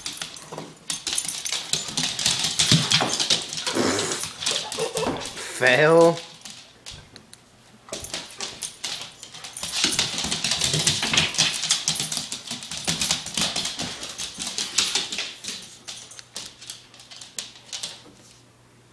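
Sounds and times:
dog claws scrabbling on wooden floor: 7.9s - 18.4s.

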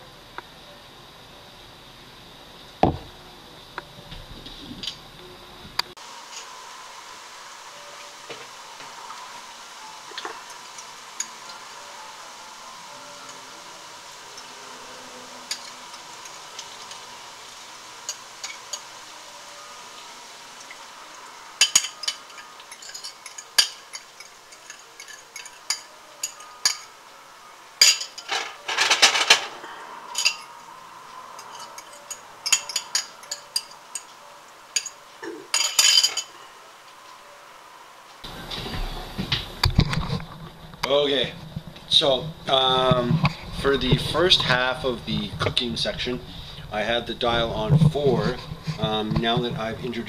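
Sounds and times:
potatoes sizzling in oil: 6.0s - 38.4s
fork clinking against ceramic bowl: 21.6s - 26.9s, 31.4s - 34.1s.

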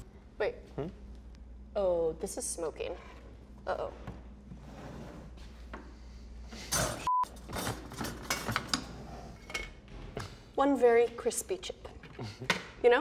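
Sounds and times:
censor bleep: 7.1s - 7.3s.

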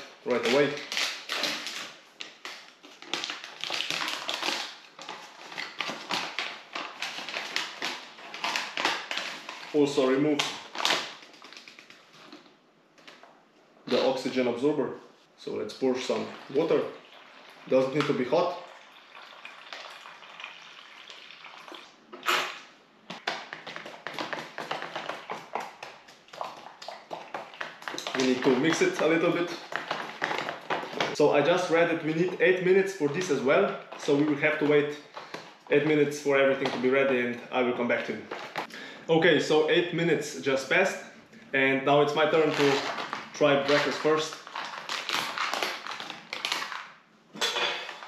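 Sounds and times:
plastic pouch crinkling: 0.0s - 12.5s, 23.2s - 35.6s, 42.2s - 47.0s
foil pouch tearing and crinkling: 0.3s - 9.8s, 42.2s - 47.0s
water pouring into pouch: 16.1s - 21.9s.

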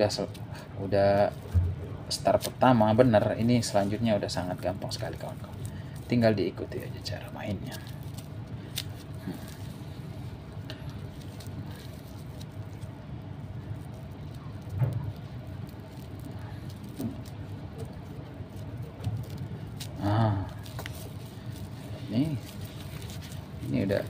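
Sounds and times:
rope rustling and ticking: 0.0s - 24.0s
steady low hum: 0.0s - 24.0s
short low thump: 1.5s - 1.9s.

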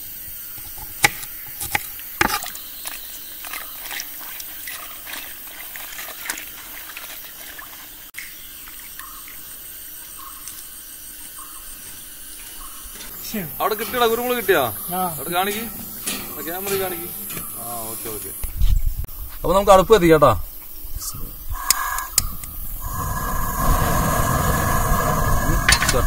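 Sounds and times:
water splashing and trickling: 2.1s - 9.5s, 13.0s - 18.5s.

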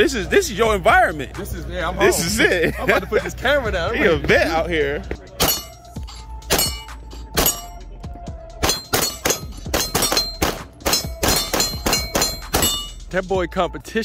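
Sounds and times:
steel plates ringing: 5.4s - 7.8s, 8.6s - 13.2s
pistol shots: 8.6s - 12.8s.

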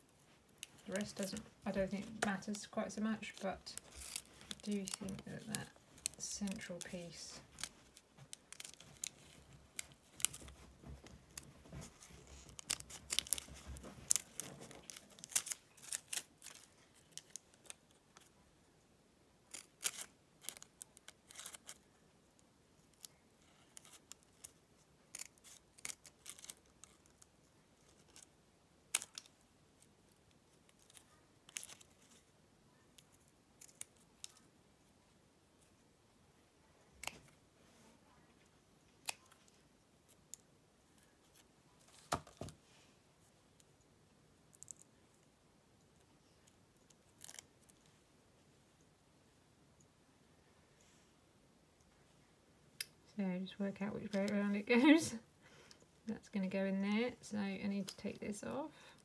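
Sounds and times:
fabric and paper rustling: 0.0s - 18.3s.

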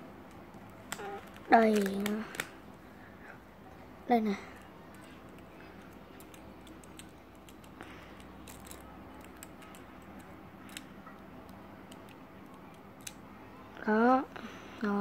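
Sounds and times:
plastic puzzle pieces clicking: 0.9s - 2.5s, 4.9s - 10.9s.

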